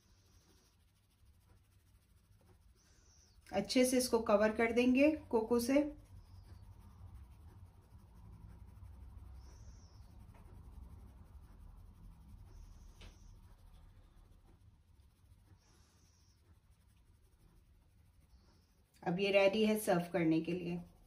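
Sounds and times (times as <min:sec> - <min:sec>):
low background hum: 0:00.0 - 0:21.0
sieve scratchy brushes: 0:00.0 - 0:21.0.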